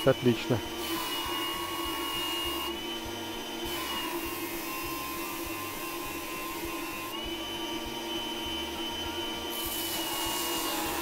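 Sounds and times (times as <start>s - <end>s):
food processor motor running: 0.0s - 11.0s
hiss of steel on abrasive: 9.6s - 11.0s.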